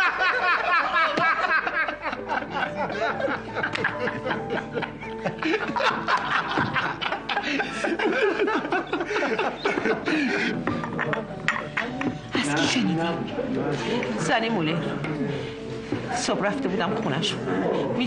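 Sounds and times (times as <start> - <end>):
men laughing: 0.0 - 14.2
background music: 0.0 - 18.0.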